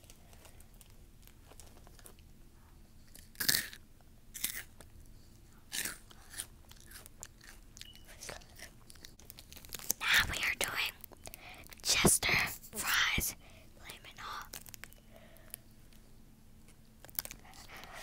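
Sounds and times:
chips crunching: 3.2 - 3.8, 4.4 - 4.9, 5.7 - 11.8, 17.0 - 17.6
faint chewing ticks: 4.4 - 12.0, 13.8 - 16.0, 17.0 - 18.0.

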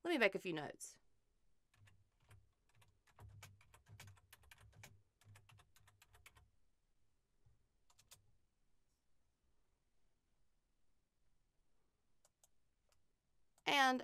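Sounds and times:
typing on computer keyboard: 1.7 - 6.5, 7.9 - 8.2.

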